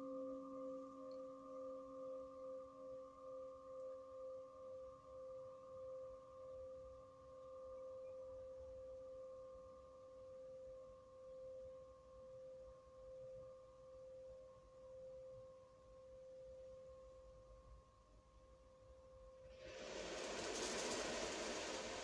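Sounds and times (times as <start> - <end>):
crystal singing bowl ringing: 0.0 - 17.0.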